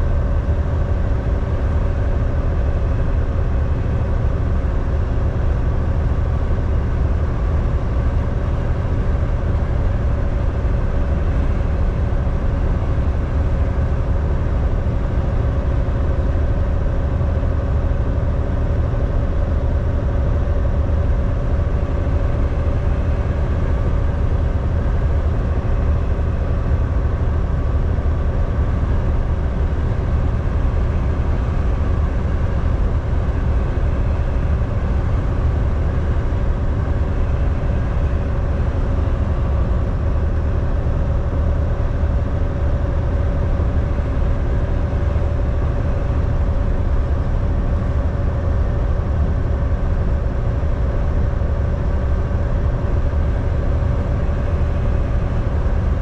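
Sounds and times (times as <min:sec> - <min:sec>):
mid-pitched hum: 0:00.0 - 0:56.0
truck engine and road drone: 0:00.0 - 0:56.0.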